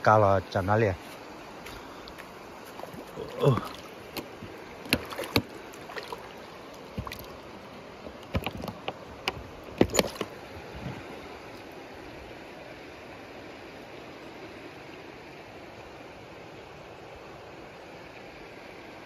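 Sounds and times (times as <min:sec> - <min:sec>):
shallow creek rushing: 0:00.0 - 0:19.0
light clicks and knocks: 0:08.0 - 0:10.3.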